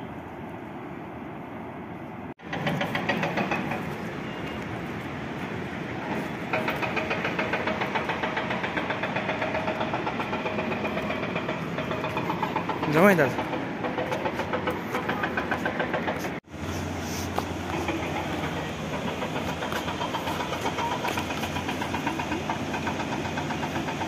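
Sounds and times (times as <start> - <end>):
engine running with fast beat: 6.4 - 24.0.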